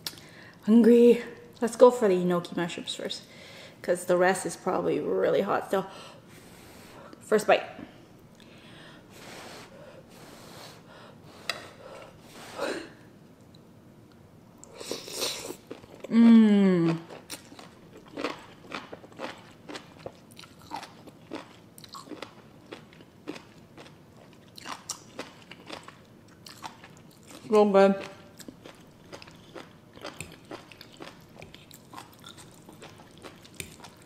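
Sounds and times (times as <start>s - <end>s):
person humming mmm: 16.0s - 17.1s
chewing with wet mouth clicks: 17.1s - 34.0s.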